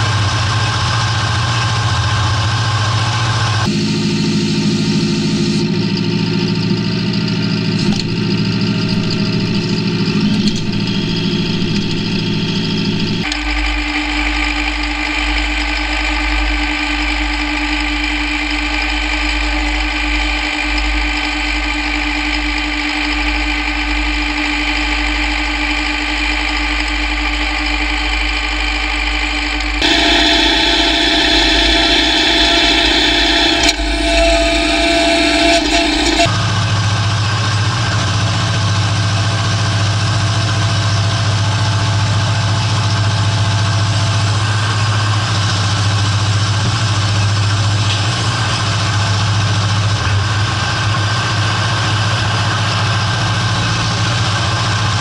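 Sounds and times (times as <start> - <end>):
tractor engine running: 0.0 - 36.4.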